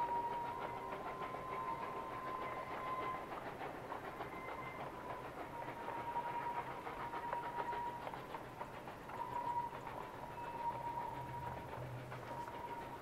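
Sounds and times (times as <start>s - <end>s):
distant steam locomotive exhaust beats: 0.0s - 13.0s
rail noise: 0.0s - 13.0s.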